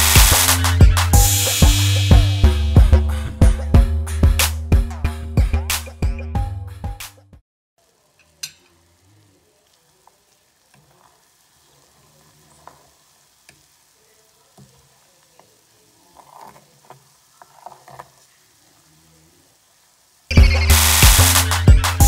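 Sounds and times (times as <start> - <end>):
oil sizzling and bubbling in pan: 0.0 - 2.9, 7.8 - 22.0
metal spoon clinking on pan: 8.2 - 8.7.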